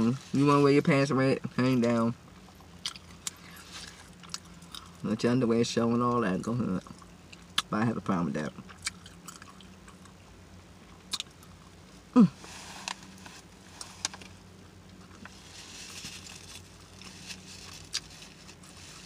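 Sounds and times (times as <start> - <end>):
open-mouthed chewing and smacking: 2.4 - 5.1, 6.8 - 7.7, 8.5 - 10.2, 11.0 - 13.2, 17.0 - 19.0
falling vocal hum: 12.1 - 12.9.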